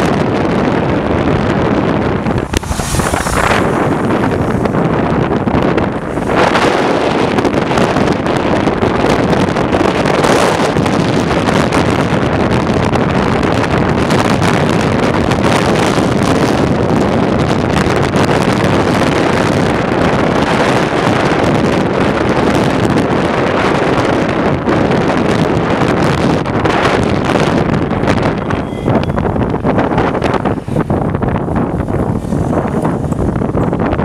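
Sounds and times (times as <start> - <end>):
road noise: 0.0 - 34.0
wind on microphone: 0.0 - 34.0.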